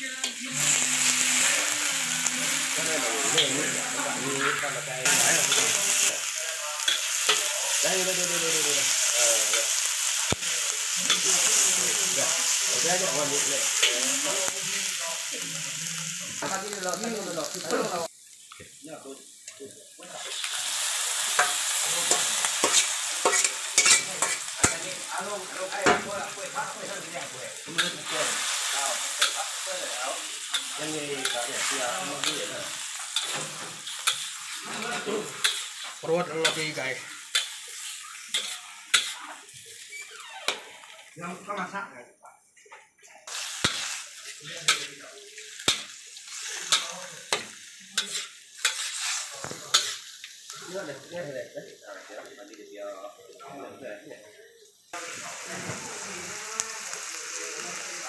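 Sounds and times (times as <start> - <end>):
aromatics sizzling in hot oil: 0.0 - 42.0, 43.2 - 58.0
metal turner scraping wok: 0.1 - 14.4, 21.2 - 40.9, 43.3 - 50.2
metal turner clicking on pan: 21.4 - 24.8, 35.4 - 35.8.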